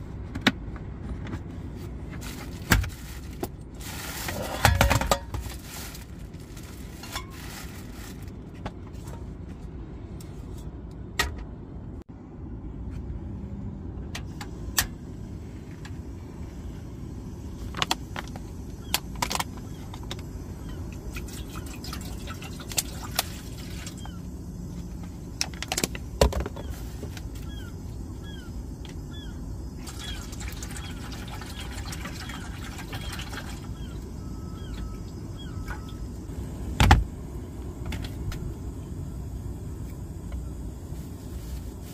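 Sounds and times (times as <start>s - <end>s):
steady low rumble: 0.0s - 32.7s, 33.4s - 41.9s
camp stove and saucepan clanking: 4.3s - 5.6s, 7.0s - 7.4s
water pouring into saucepan: 29.8s - 33.6s.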